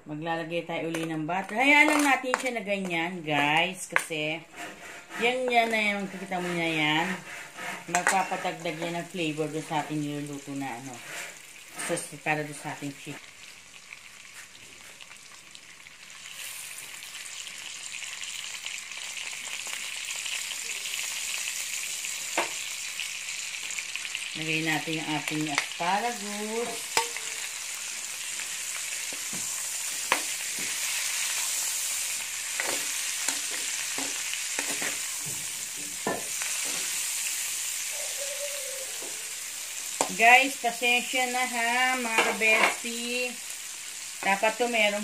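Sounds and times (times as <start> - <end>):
butter sizzling in wok: 0.9 - 45.0
metal ladle scraping pan: 1.5 - 2.6, 3.3 - 9.9, 10.8 - 12.2, 25.8 - 27.6, 28.6 - 37.0, 42.0 - 42.9.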